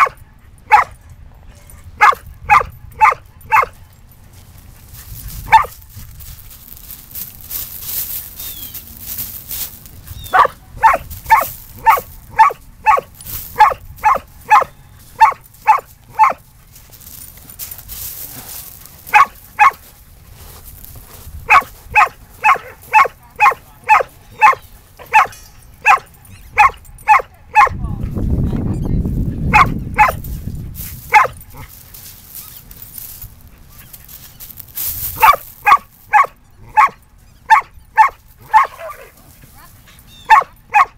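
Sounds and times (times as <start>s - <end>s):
dog barking: 0.0s - 1.0s, 1.9s - 3.8s, 5.5s - 5.7s, 10.3s - 16.4s, 19.1s - 19.8s, 21.5s - 27.8s, 29.5s - 30.2s, 31.1s - 31.7s, 35.2s - 39.1s, 40.2s - 40.9s.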